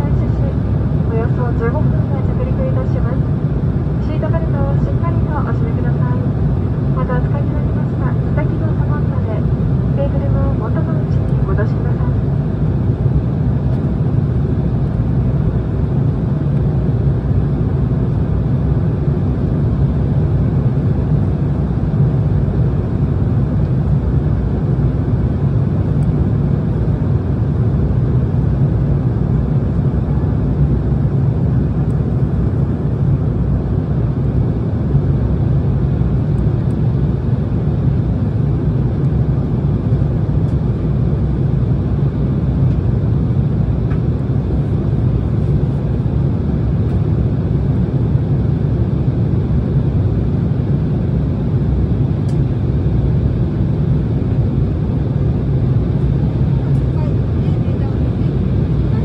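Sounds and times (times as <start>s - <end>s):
airliner cabin drone: 0.0s - 59.0s.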